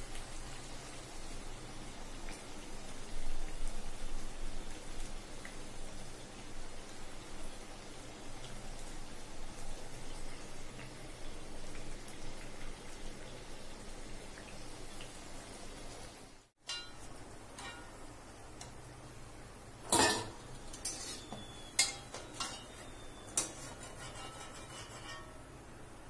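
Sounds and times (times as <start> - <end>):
oil sizzling: 0.0 - 26.0
metal spoon clinking on iron pan: 16.6 - 18.0, 19.9 - 25.4.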